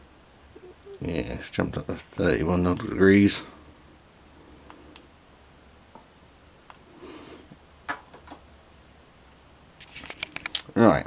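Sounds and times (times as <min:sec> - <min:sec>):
soft rustle of handling: 0:09.8 - 0:10.8.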